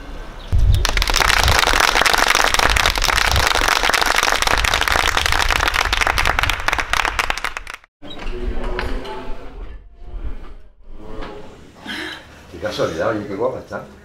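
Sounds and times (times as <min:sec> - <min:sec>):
crowd applauding: 0:00.7 - 0:07.9.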